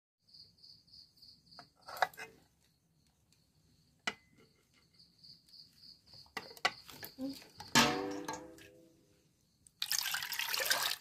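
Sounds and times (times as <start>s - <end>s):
insect chirping: 0.2s - 11.0s
eggs knocking in metal pot: 7.6s - 8.9s.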